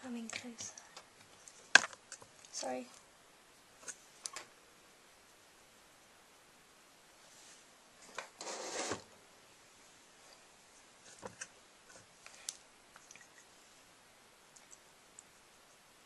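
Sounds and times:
rustling rub: 7.2 - 7.7, 8.3 - 9.1
small clicks and taps: 14.5 - 15.3.

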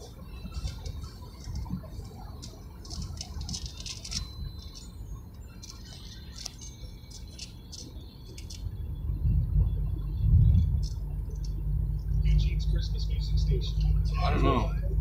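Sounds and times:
car road and engine rumble: 0.0 - 15.0
light rattling and clicking: 0.5 - 4.9, 5.6 - 8.7.

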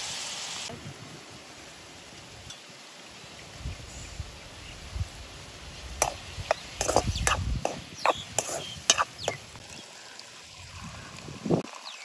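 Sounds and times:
wooden spatula scraping metal pan: 6.0 - 9.4.

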